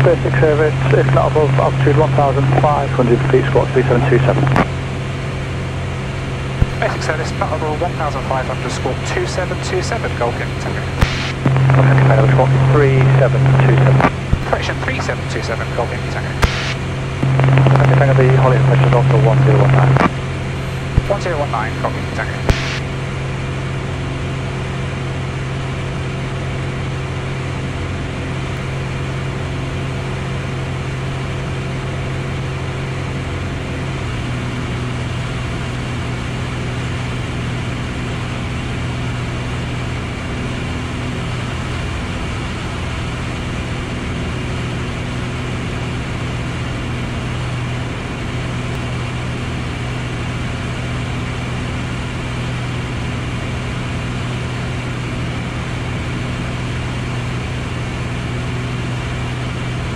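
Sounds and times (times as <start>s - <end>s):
propeller plane engine droning: 0.0s - 59.9s.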